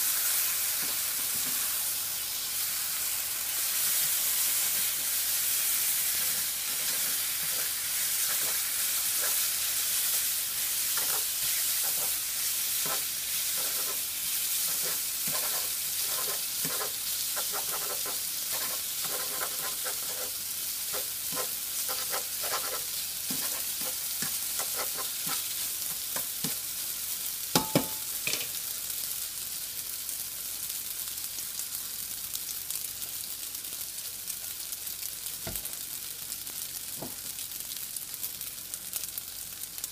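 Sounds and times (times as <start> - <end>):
noodles sizzling in frying pan: 0.0 - 39.9
spatula scraping pan: 6.0 - 26.6.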